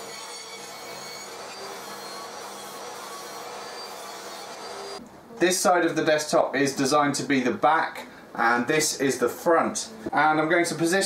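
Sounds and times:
table saw motor whine: 0.0s - 5.0s
hiss of saw cutting wood: 0.8s - 5.0s.

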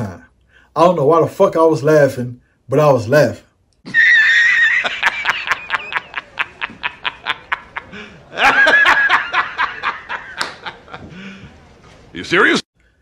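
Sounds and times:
man laughing: 3.8s - 11.3s.

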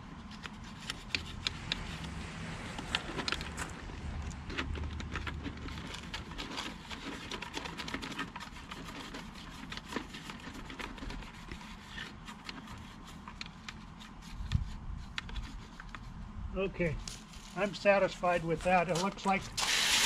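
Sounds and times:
scrubbing plastic: 0.2s - 16.2s.

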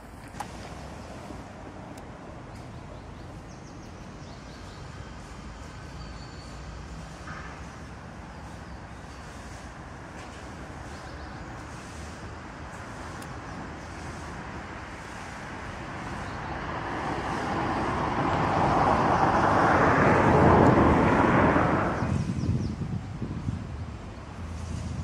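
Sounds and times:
road traffic hum: 0.0s - 25.0s
vehicle passing: 14.1s - 22.4s.

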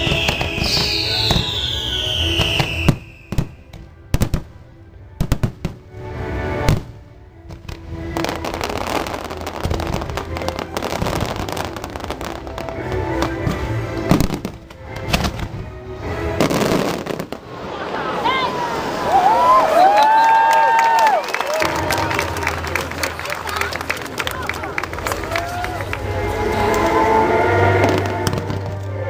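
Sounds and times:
fireworks whistle: 0.0s - 3.6s
fireworks bangs: 0.0s - 4.6s, 5.2s - 5.9s, 6.6s - 15.7s, 16.3s - 19.0s, 27.6s - 28.9s
crackling fireworks bursts: 0.0s - 29.0s
loud show music: 25.5s - 29.0s.

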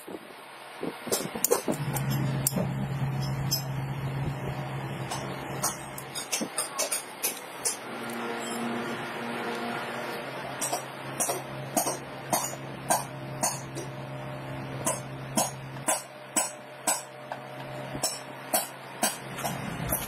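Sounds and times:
low hum: 1.7s - 6.2s.

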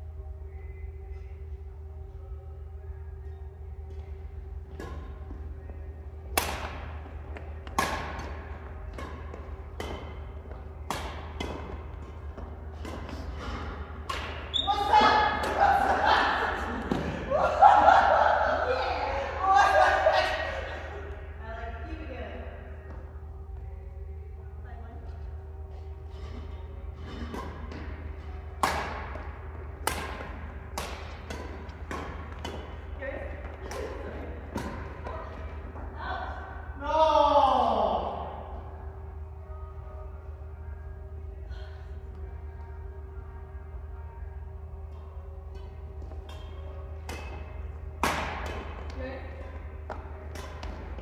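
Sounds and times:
steady low hum: 0.0s - 51.0s
racket hitting shuttlecock: 6.3s - 7.0s, 7.6s - 16.0s, 28.6s - 32.8s, 33.6s - 35.1s, 46.3s - 48.9s, 49.9s - 51.0s
badminton racket hitting shuttlecock: 29.8s - 32.8s.

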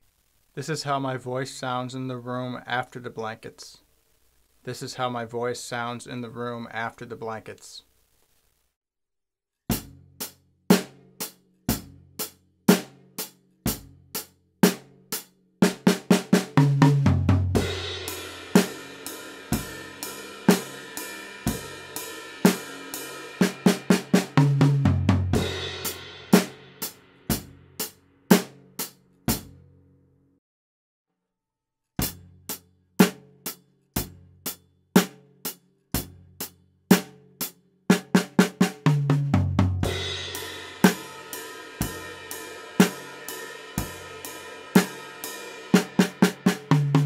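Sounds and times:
drum kit in reverberant room: 9.7s - 29.8s, 32.0s - 47.0s
bass drum: 16.6s - 18.3s, 24.2s - 26.2s, 38.8s - 41.1s, 45.8s - 47.0s
cymbals: 17.6s - 27.9s, 39.8s - 47.0s.

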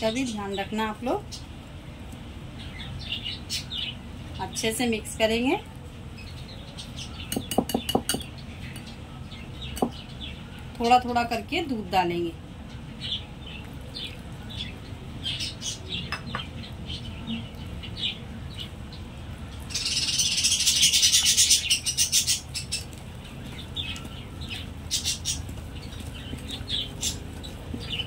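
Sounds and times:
small birds chirping: 0.0s - 28.0s
rapid high bird chirping: 13.9s - 28.0s.

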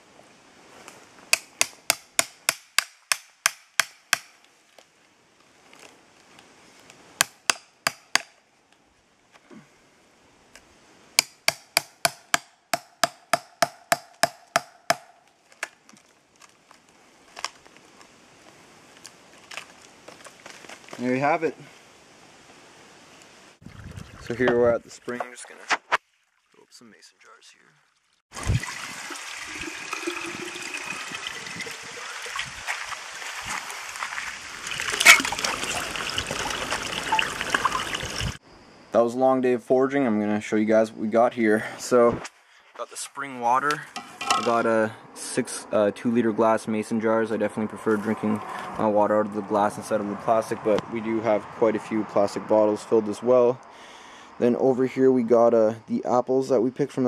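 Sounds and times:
hammer striking a chisel: 1.3s - 4.3s, 7.2s - 8.3s, 11.2s - 15.1s
water trickling into glass jar: 23.6s - 25.1s, 27.9s - 32.7s, 34.6s - 38.4s.

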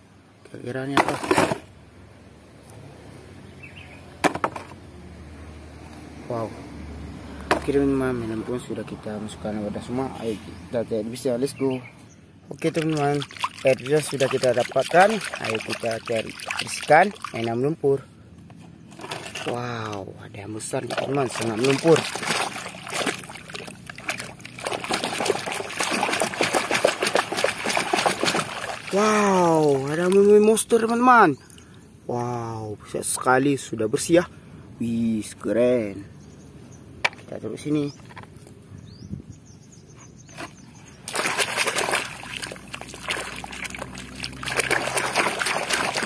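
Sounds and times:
water splashing in a basin: 12.5s - 17.7s, 19.0s - 20.0s, 20.6s - 30.8s, 41.0s - 46.0s.

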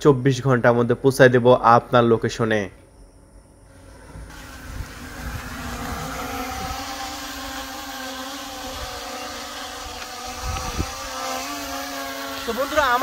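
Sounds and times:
drone buzzing hum: 3.0s - 13.0s.

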